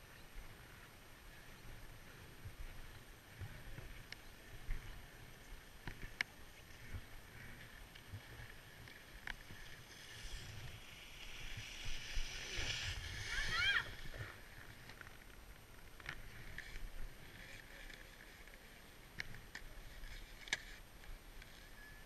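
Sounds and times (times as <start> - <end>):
snowboard sliding on snow: 6.6 - 14.9.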